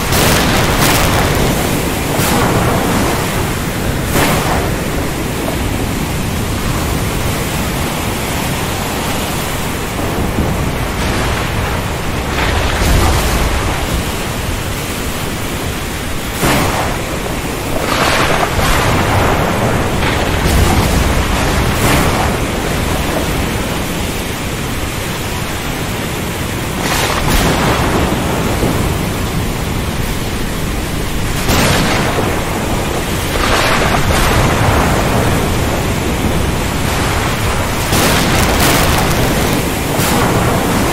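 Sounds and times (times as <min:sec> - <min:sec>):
sharp thunder cracks: 0:00.0 - 0:05.8, 0:10.2 - 0:14.5, 0:16.3 - 0:23.6, 0:26.8 - 0:29.3, 0:31.3 - 0:40.9
low thunder rumbles: 0:00.0 - 0:08.2, 0:09.6 - 0:24.2, 0:26.6 - 0:40.9
heavy rain hissing: 0:00.0 - 0:40.9.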